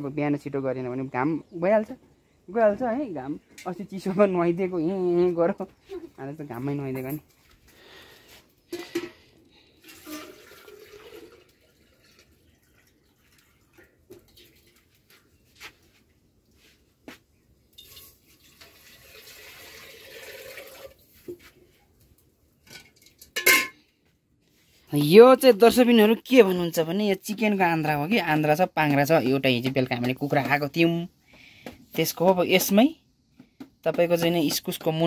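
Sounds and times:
water pouring or splashing: 0:09.8 - 0:15.2, 0:17.7 - 0:21.4.

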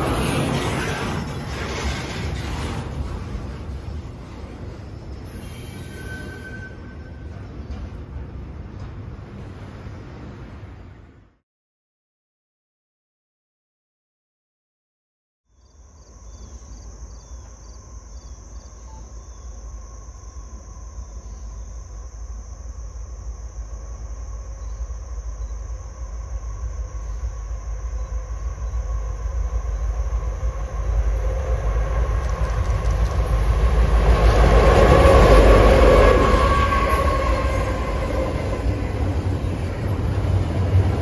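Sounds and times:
diesel locomotive rumble: 0:00.0 - 0:11.2, 0:16.2 - 0:41.0
high insect buzz: 0:15.5 - 0:31.8.

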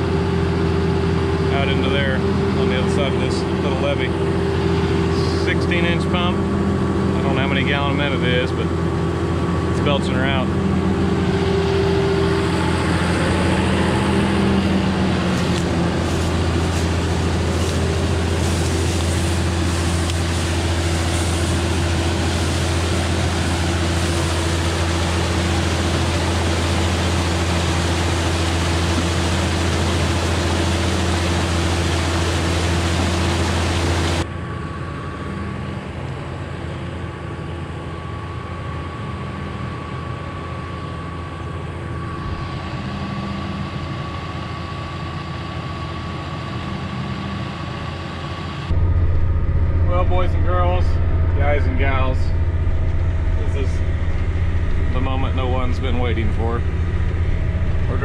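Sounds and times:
tractor engine running: 0:00.0 - 0:58.0
water rushing from hose: 0:13.8 - 0:34.2.

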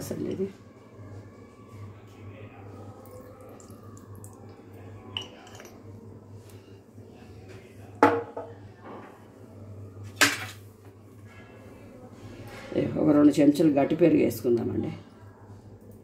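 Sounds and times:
glass and spoon clinking: 0:05.1 - 0:05.9.

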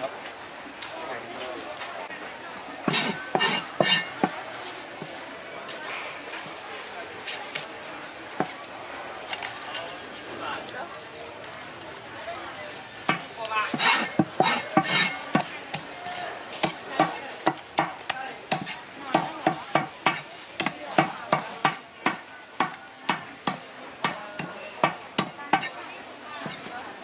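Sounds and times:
meat cleaver chopping through bone: 0:02.9 - 0:04.3, 0:13.1 - 0:15.5, 0:16.6 - 0:25.7.

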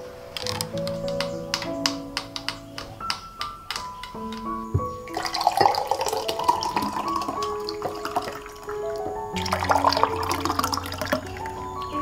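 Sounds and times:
soft background music: 0:00.0 - 0:12.0
juice pouring into mugs: 0:05.1 - 0:11.6.

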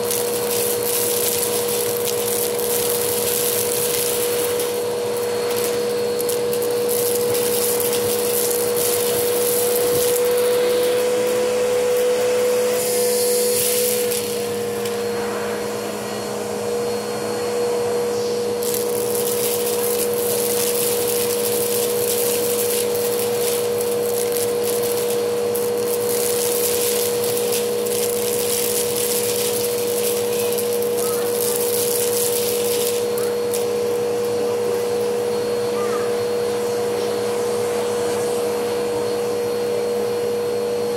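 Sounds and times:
noodles rattling up hose: 0:00.0 - 0:15.0, 0:18.6 - 0:35.1
vacuum cleaner whining: 0:00.0 - 0:40.9.

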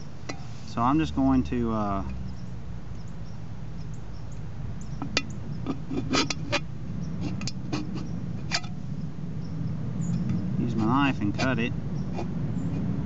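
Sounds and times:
knife scraping aluminium can: 0:05.1 - 0:08.8, 0:10.7 - 0:11.6.

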